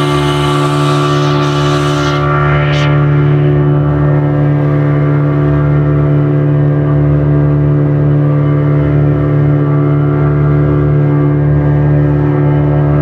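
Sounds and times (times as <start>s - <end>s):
motorboat engine droning: 0.0s - 13.0s.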